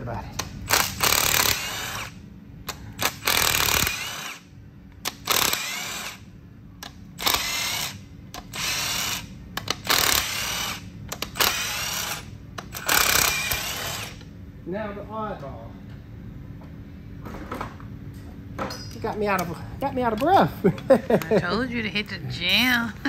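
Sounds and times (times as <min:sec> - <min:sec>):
impact wrench whining: 0:00.4 - 0:14.3.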